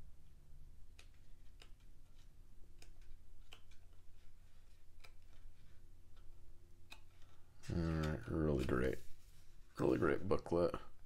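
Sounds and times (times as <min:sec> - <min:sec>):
low steady hum: 0:00.0 - 0:11.0
pages turning: 0:01.0 - 0:06.3, 0:07.0 - 0:10.1.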